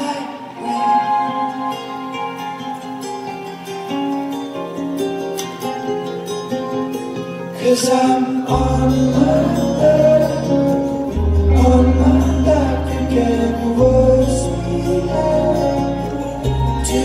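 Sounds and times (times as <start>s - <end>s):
ukulele and guitars playing: 0.0s - 17.0s
low bass notes: 8.5s - 17.0s.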